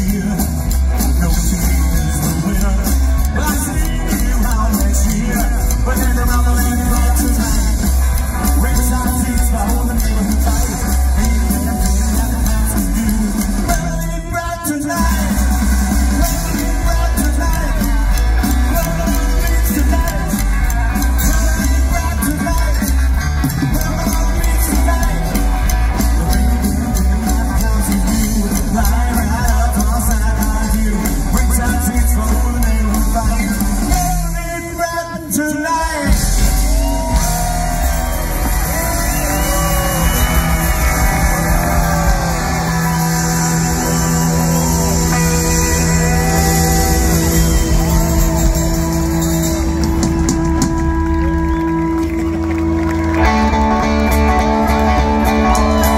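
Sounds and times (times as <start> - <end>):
rockabilly band playing: 0.0 - 55.9
slapped upright bass: 14.9 - 34.5.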